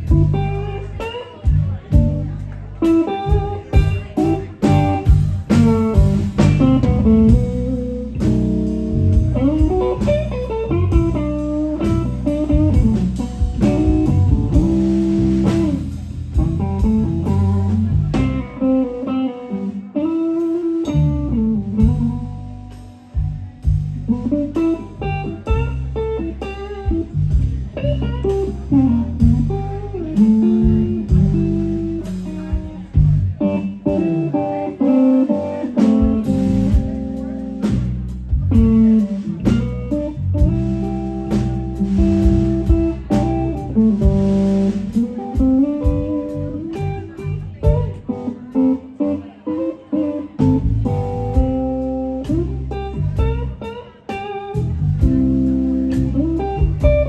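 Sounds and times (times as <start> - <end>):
drums and cymbals: 0.0 - 49.3, 50.2 - 57.0
blues band playing: 0.0 - 57.0
electric guitar bent notes: 0.0 - 57.0.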